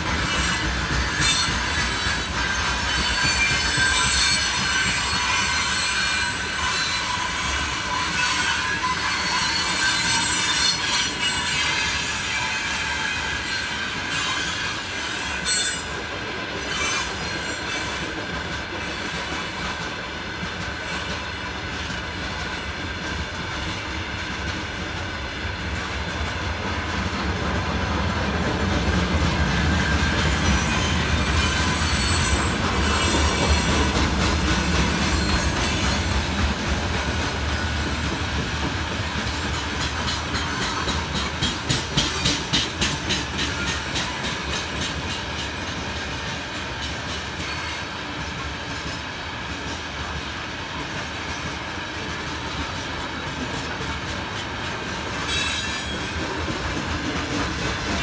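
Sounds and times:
freight train wagons rumbling past: 0:00.0 - 0:58.0
high wheel squeal: 0:00.3 - 0:16.0, 0:29.7 - 0:33.9, 0:55.2 - 0:56.3.

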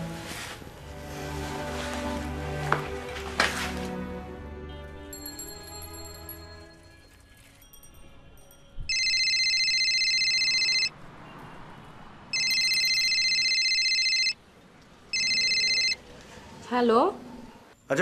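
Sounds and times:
telephone ringing: 0:08.9 - 0:11.0, 0:12.3 - 0:14.4, 0:15.1 - 0:16.0.

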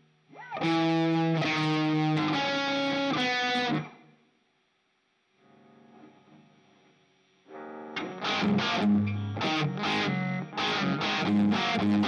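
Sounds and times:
distorted electric guitar chords: 0:00.0 - 0:04.1, 0:07.5 - 0:12.0.

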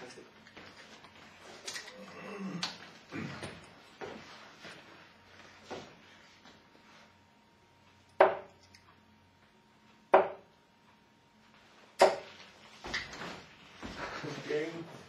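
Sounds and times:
darts thudding into dartboard: 0:08.2 - 0:08.5, 0:10.1 - 0:10.5, 0:12.0 - 0:12.3.

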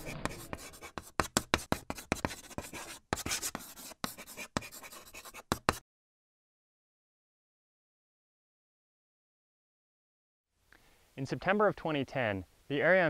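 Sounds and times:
chalk tapping and scratching: 0:00.0 - 0:05.8.

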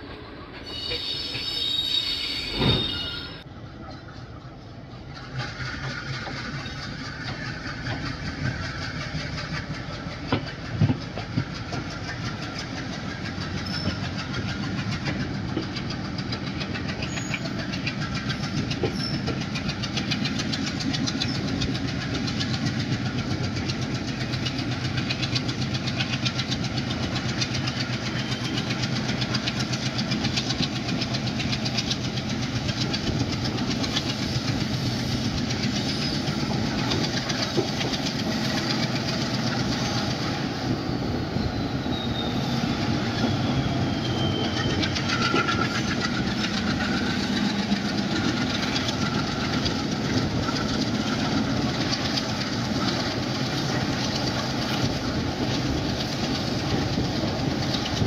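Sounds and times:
train rumbling on track: 0:00.0 - 0:58.0
wheels clattering over rail joints: 0:05.0 - 0:40.4, 0:43.1 - 0:58.0.

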